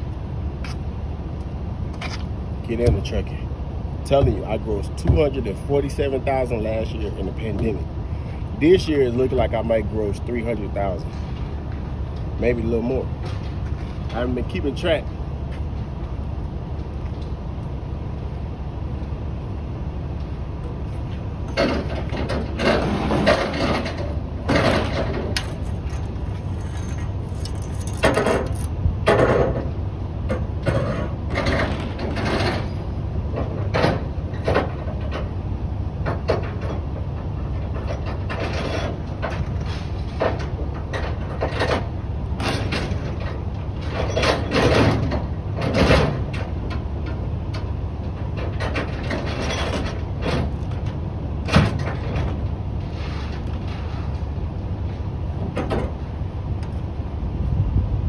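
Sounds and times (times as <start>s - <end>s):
steady low rumble: 0.0s - 58.0s
chains clanking and rattling: 21.5s - 29.6s, 42.4s - 45.1s.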